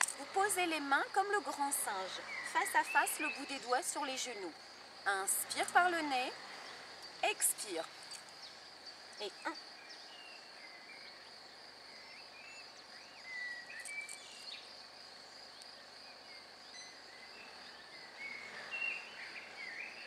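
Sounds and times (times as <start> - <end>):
birds chirping: 0.0 - 20.0
high insect drone: 0.0 - 20.0.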